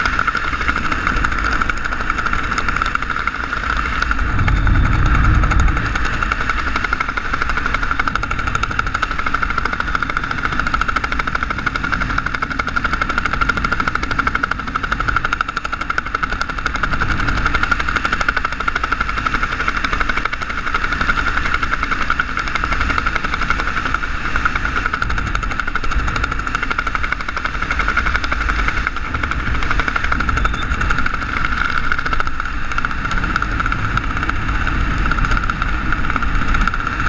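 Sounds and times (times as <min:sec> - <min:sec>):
wind rushing over microphone: 0:00.0 - 0:12.3
parachute canopy fluttering: 0:02.0 - 0:08.4.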